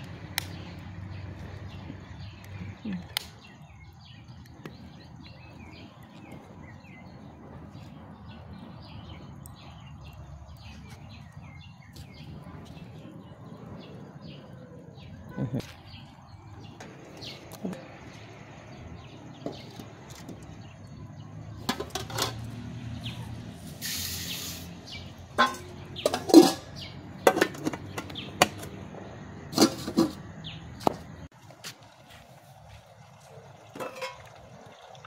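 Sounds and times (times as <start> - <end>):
metal pot and lids clanking: 21.6 - 22.5, 25.3 - 28.7, 29.5 - 30.2, 33.7 - 34.4.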